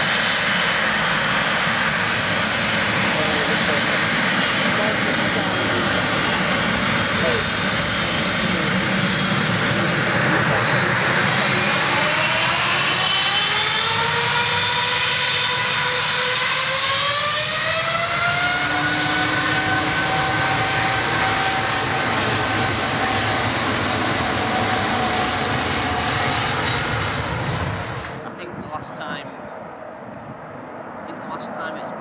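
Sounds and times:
jet engine whine rising: 0:00.0 - 0:32.0
loud jet roar: 0:00.0 - 0:32.0.

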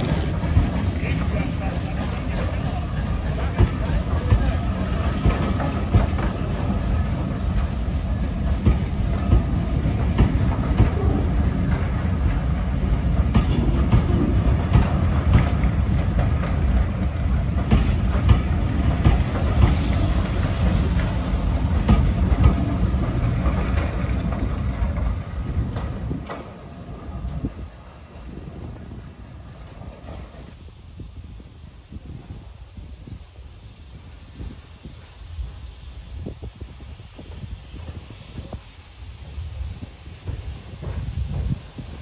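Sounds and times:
wheels clicking over rail joints: 0:00.0 - 0:28.7
train coaches rumbling past: 0:00.0 - 0:42.0.

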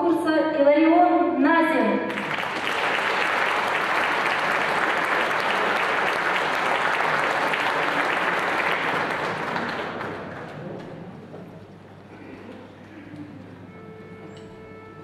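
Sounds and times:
audience applauding: 0:02.1 - 0:11.3.

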